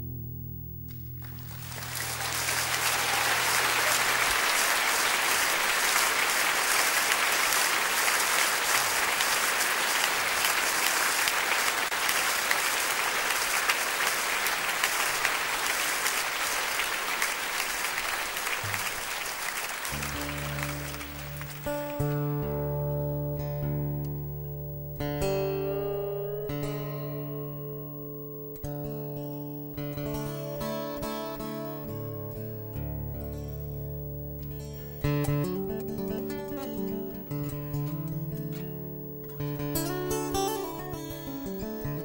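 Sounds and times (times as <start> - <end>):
acoustic guitar playing: 0.0 - 6.8, 19.8 - 42.0
audience applause: 1.2 - 22.5.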